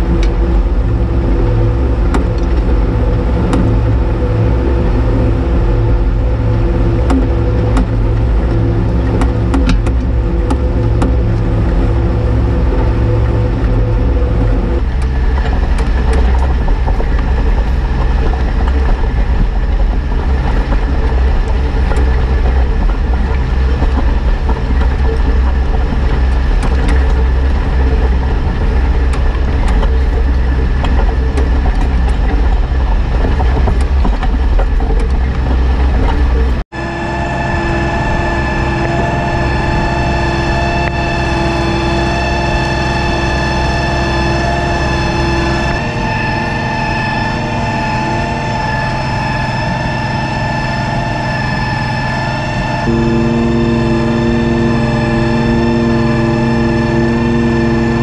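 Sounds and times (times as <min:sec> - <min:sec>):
steady pitched whine: 0:00.0 - 0:58.0
tractor engine rumbling: 0:00.0 - 0:58.0.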